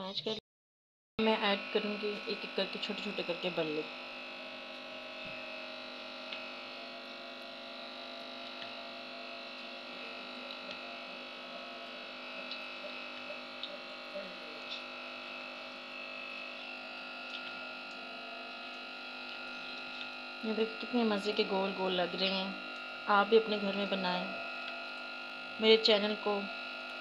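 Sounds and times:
electrical hum: 0:01.2 - 0:27.0
frying oil crackles and pops: 0:08.3 - 0:08.9, 0:12.4 - 0:14.0, 0:17.2 - 0:25.5.

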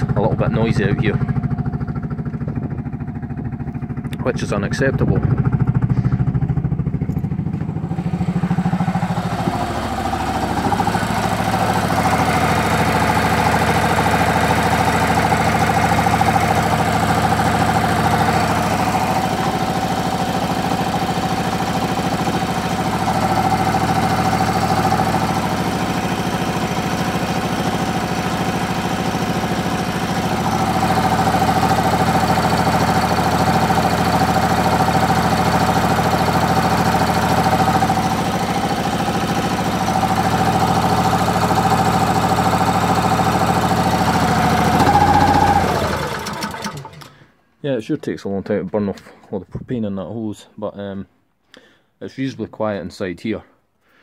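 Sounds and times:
small generator engine running: 0:00.0 - 0:47.4.

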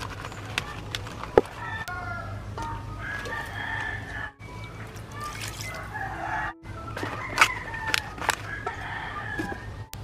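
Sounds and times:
roosters crowing: 0:01.5 - 0:04.4, 0:05.6 - 0:09.8.

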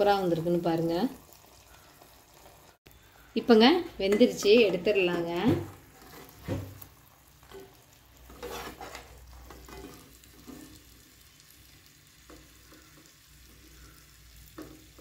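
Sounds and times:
hot oil sizzling: 0:00.0 - 0:15.0
spoon scraping pan: 0:03.4 - 0:15.0.

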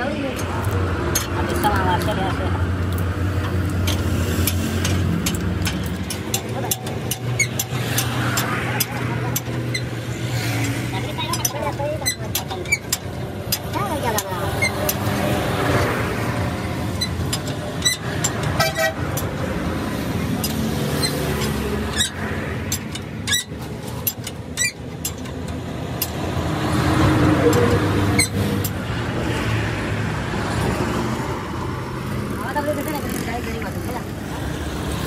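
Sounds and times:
roadside traffic: 0:00.0 - 0:35.0
hand tools clinking on metal: 0:00.4 - 0:28.8
vehicle horn toots: 0:18.6 - 0:19.0.

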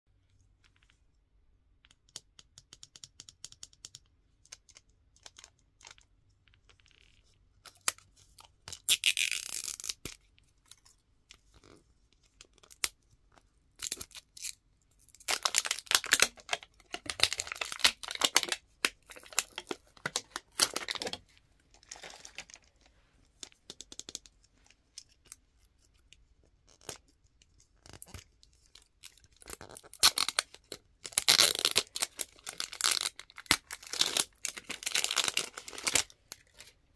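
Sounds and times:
clicks and scratches on plastic: 0:00.3 - 0:36.8
plastic wrapper crinkling and tearing: 0:06.6 - 0:10.9, 0:13.8 - 0:22.8, 0:27.8 - 0:36.8.

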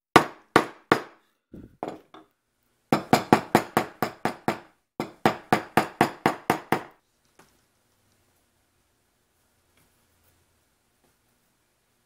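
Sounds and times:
mallet striking chisel: 0:03.0 - 0:06.9.

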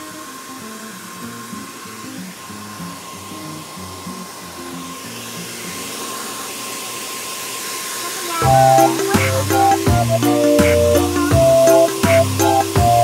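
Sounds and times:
hair dryer blowing: 0:00.0 - 0:13.0
background music: 0:08.4 - 0:13.0.

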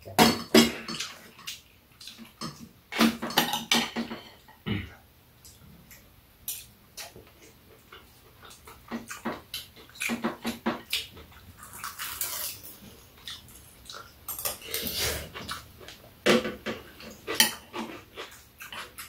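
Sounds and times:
chewing and lip-smacking: 0:05.5 - 0:16.0.

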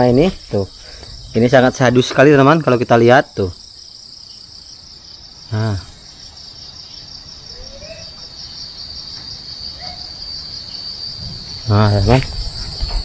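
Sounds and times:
crickets chirping: 0:00.0 - 0:13.0
wind rumbling on microphone: 0:11.1 - 0:13.0.

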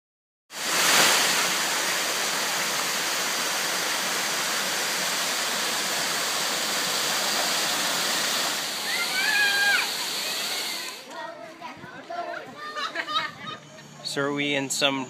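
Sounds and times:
waterfall splashing over rocks: 0:00.6 - 0:11.1.

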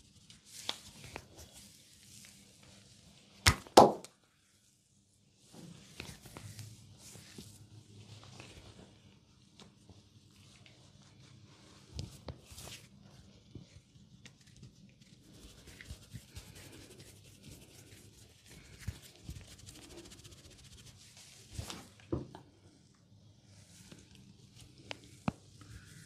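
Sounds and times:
fingers scratching through hair: 0:14.4 - 0:21.8.

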